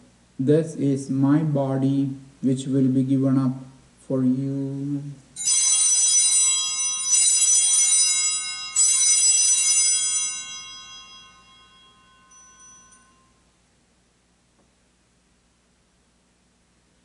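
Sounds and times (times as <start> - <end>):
altar bells ringing: 5.4 - 13.4.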